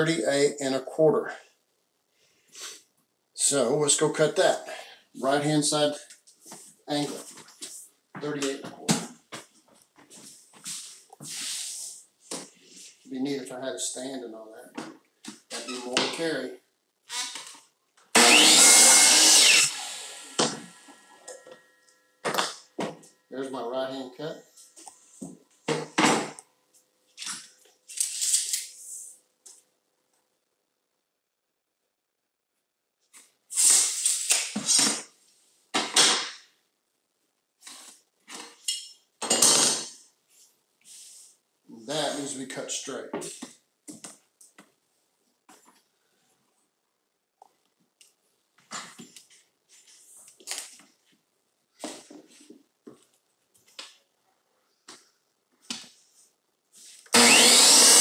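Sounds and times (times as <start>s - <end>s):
electric miter saw motor: 18.2s - 21.4s, 57.1s - 58.0s.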